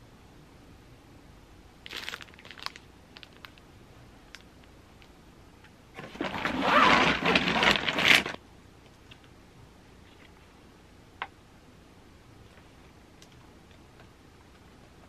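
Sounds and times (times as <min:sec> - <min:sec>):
plastic packaging crinkling: 0:01.8 - 0:03.6, 0:06.0 - 0:08.4.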